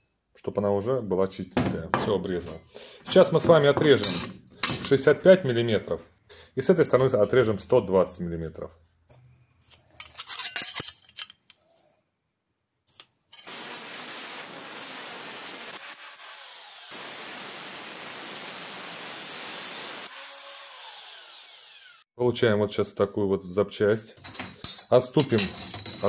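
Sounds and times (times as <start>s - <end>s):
angle grinder cutting steel: 14.5s - 22.1s.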